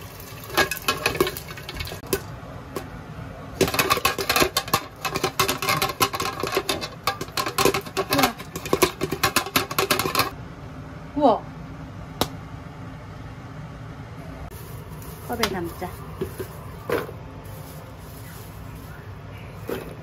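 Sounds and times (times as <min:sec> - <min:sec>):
popcorn popping in a pan: 0:00.0 - 0:10.4.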